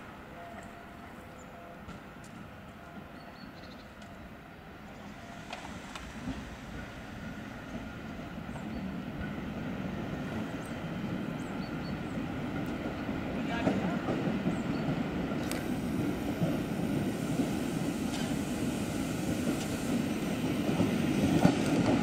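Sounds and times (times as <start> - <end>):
train wheels rumbling: 4.8 - 22.0.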